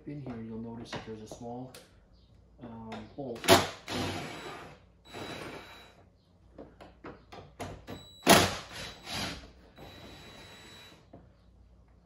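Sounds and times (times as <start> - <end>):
drill running with high whine: 3.8 - 6.0, 8.2 - 11.0.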